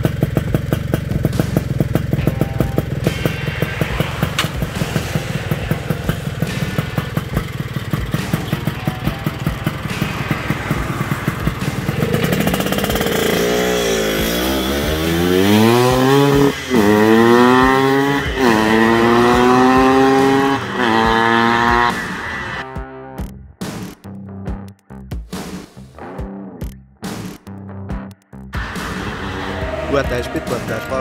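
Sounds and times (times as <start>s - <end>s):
two-stroke motorcycle engine revving: 0.0s - 23.9s.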